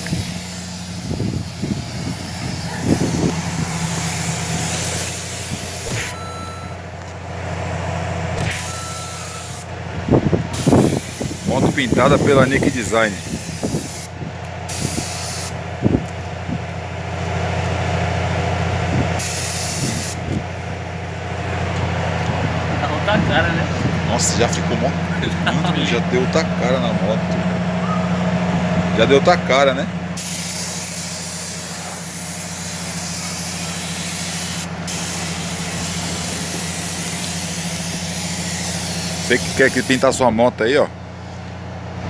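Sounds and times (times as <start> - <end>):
spray gun hissing: 0.0 - 6.2, 10.5 - 14.1, 14.7 - 15.6, 19.2 - 20.2, 30.2 - 40.0
steady low hum: 0.0 - 42.0
low hum: 0.1 - 10.6.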